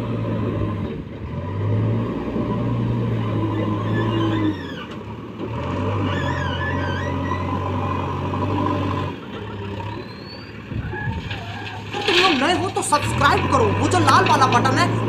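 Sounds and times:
diesel engine working: 0.0s - 15.0s
bucket scooping stone: 11.2s - 15.0s.

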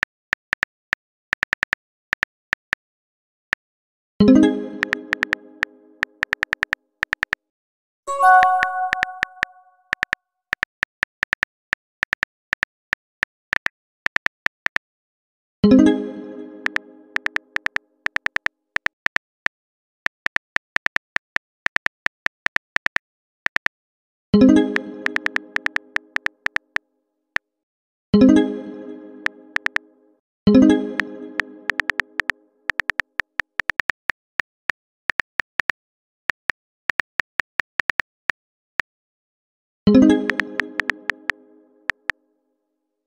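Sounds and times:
phone keyboard typing taps: 4.8s - 5.4s, 6.2s - 7.4s, 8.2s - 12.7s, 16.7s - 19.3s, 25.0s - 26.8s, 29.6s - 29.8s, 31.7s - 38.4s, 40.3s - 41.0s
message notification chime: 8.1s - 9.7s
phone keyboard taps: 29.6s - 29.8s, 31.7s - 34.0s.

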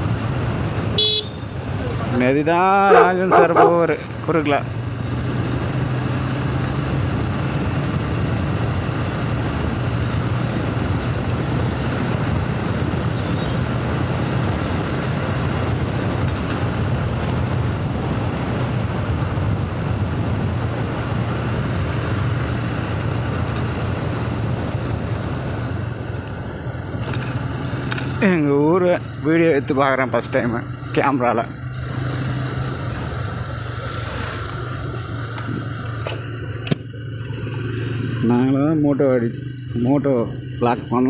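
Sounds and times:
motorcycle engine running: 2.8s - 13.5s, 18.9s - 41.0s
wind rush on microphone: 14.1s - 27.1s.

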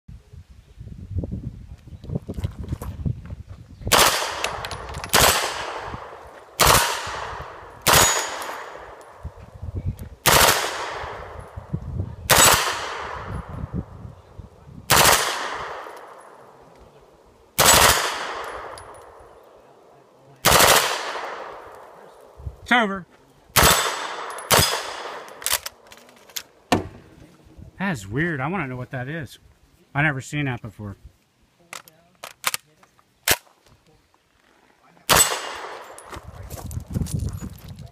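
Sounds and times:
carbine gunshots: 3.9s - 9.2s, 10.2s - 11.6s, 12.3s - 13.5s, 14.9s - 16.6s, 17.6s - 19.2s, 20.4s - 22.4s, 23.6s - 25.9s, 35.1s - 36.2s.

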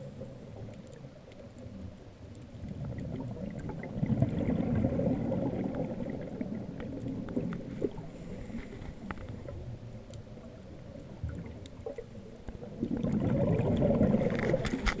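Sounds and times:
diver's bubbles gurgling: 0.0s - 15.0s
faint clicks: 0.1s - 3.7s, 5.6s - 13.1s.

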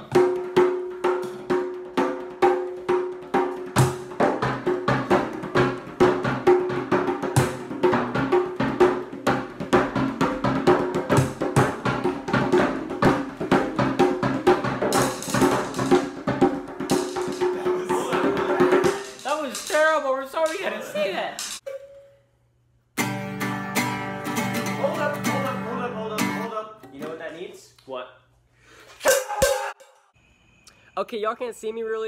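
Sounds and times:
drums played by hand and mallet: 0.0s - 20.8s, 29.0s - 29.8s.

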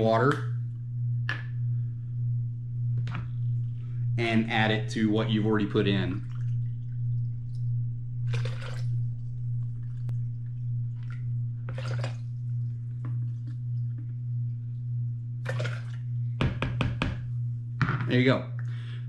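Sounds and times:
steady low hum: 0.0s - 19.0s
water glugging: 2.8s - 19.0s
water pouring into plastic bucket: 8.3s - 8.9s, 11.0s - 12.2s, 15.5s - 16.0s.

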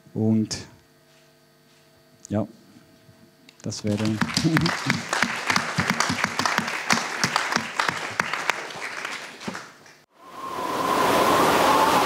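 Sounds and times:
audience applauding: 3.8s - 10.0s
rushing hiss with faint whistling: 10.2s - 12.0s.

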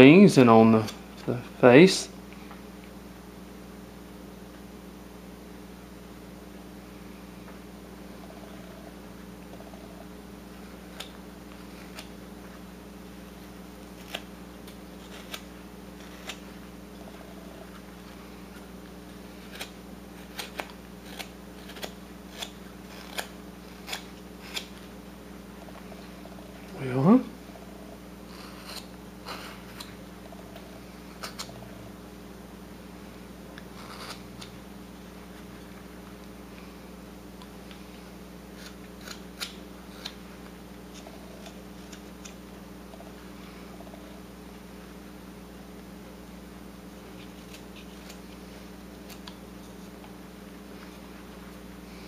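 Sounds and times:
faint steady hum: 0.0s - 52.0s
knife cutting wood: 13.8s - 16.6s, 17.3s - 24.8s, 28.3s - 30.0s, 33.6s - 34.5s, 38.5s - 40.3s.

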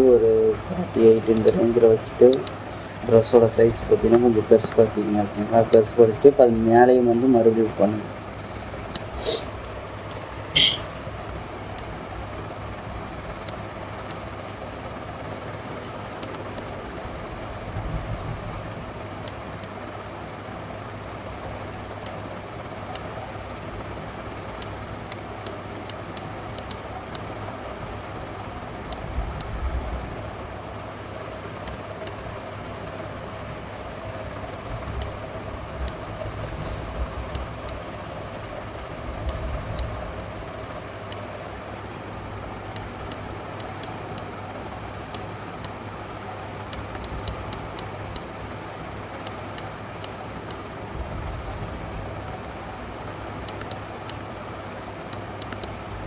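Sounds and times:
background hum: 0.0s - 56.0s
computer mouse clicking: 1.3s - 2.6s, 24.6s - 27.3s, 39.2s - 39.9s, 46.7s - 48.3s, 53.4s - 54.2s, 55.1s - 55.8s.

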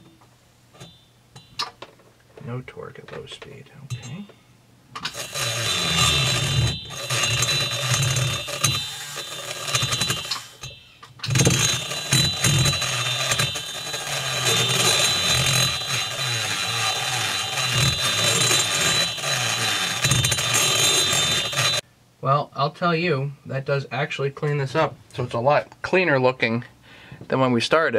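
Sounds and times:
burr grinding metal: 5.0s - 21.8s
micromotor high whine: 5.1s - 21.8s.

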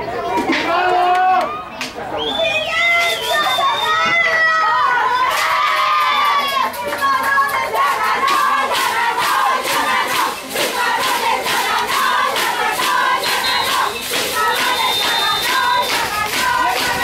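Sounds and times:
group of voices chanting: 4.6s - 17.0s
rhythmic hand claps: 5.3s - 17.0s.

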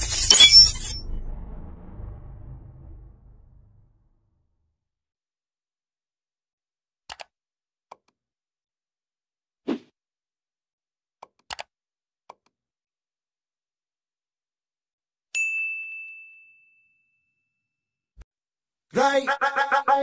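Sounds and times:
bright bell ding: 0.1s - 1.1s, 15.4s - 17.4s.

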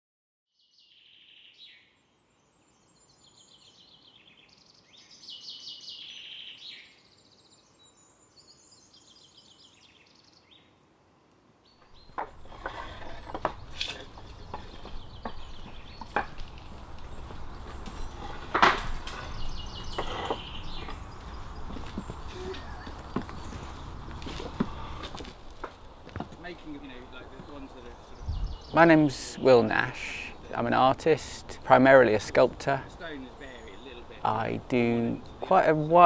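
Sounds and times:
small birds singing: 0.5s - 36.0s.

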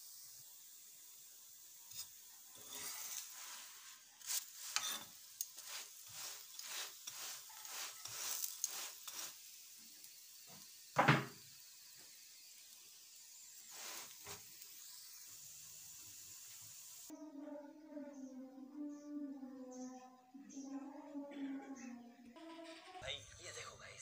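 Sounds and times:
oil sizzling: 0.0s - 17.2s
flatbread scraping on griddle: 1.9s - 9.6s.

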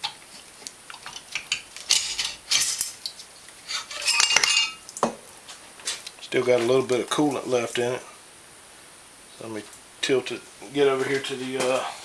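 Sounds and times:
metal clinking and scraping: 1.0s - 3.0s, 3.6s - 4.8s.

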